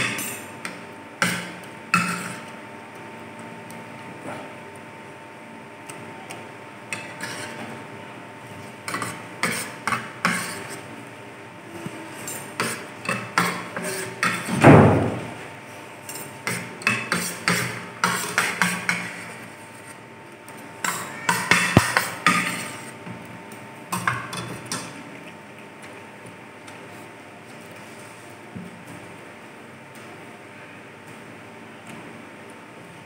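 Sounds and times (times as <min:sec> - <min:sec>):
forks clinking on a plate: 0:00.0 - 0:00.5.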